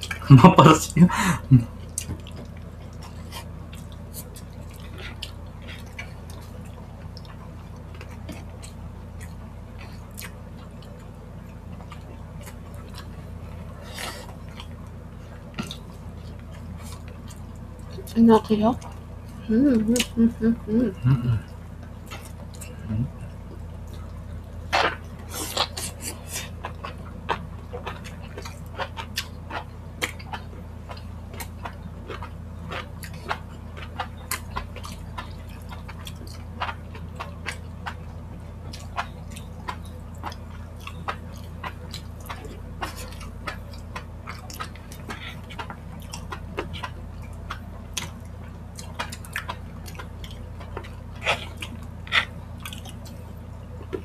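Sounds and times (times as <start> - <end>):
steady low hum: 0.0 - 54.0
wet lip smacks and chewing: 38.7 - 54.0.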